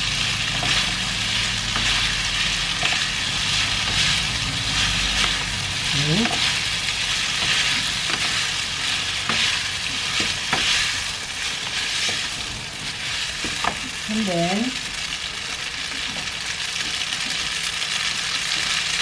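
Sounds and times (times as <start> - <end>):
fat sizzling in a frying pan: 0.0 - 19.0
wooden utensils scraping a pan: 0.2 - 14.0.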